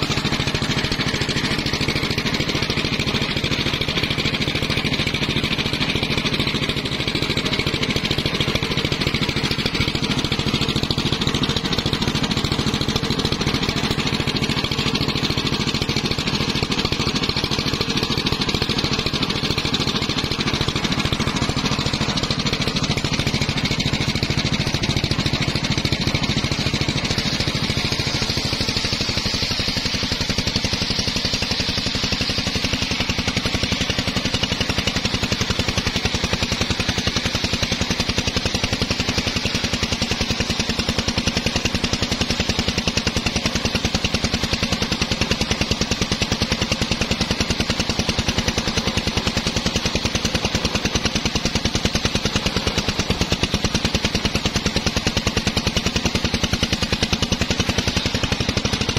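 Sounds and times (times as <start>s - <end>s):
engine running under load: 0.0s - 58.9s
saw blade cutting wood hiss: 23.2s - 58.9s.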